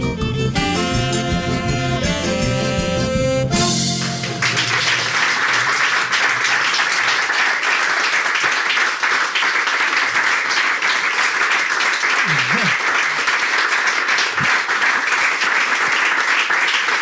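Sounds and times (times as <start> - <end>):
audience applause: 4.0 - 17.0.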